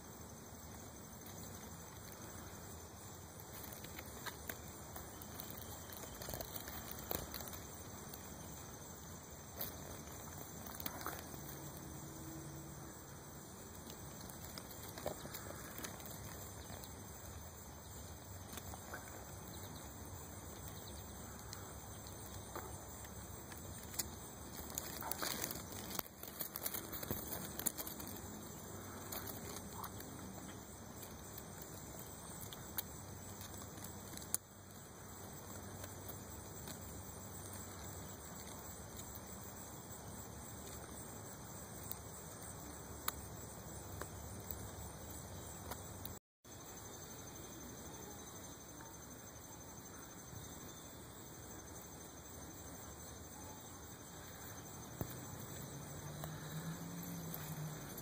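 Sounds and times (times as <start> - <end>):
soft clicks and rustles: 20.4 - 34.4, 54.4 - 58.0.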